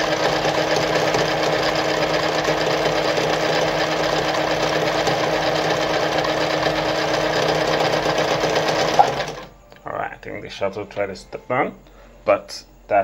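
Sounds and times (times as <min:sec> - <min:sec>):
sewing machine running: 0:00.0 - 0:09.5.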